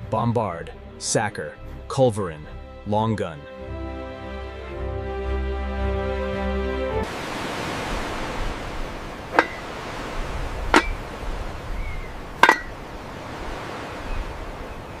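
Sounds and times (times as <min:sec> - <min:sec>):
metal lid clinking shut: 0:09.3 - 0:09.6, 0:10.7 - 0:11.0, 0:12.4 - 0:12.8.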